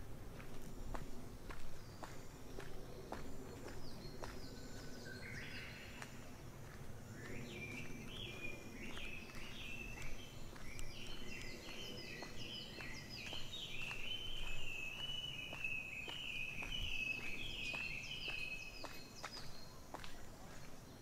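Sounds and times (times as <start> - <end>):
birds whistling calls: 7.2 - 20.1.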